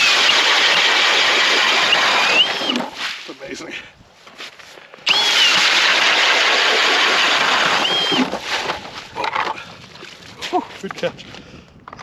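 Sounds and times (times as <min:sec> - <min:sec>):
cordless drill motor whining: 0:00.0 - 0:02.9, 0:05.1 - 0:08.3
auger churning ice and slush: 0:00.0 - 0:03.4, 0:05.1 - 0:10.6.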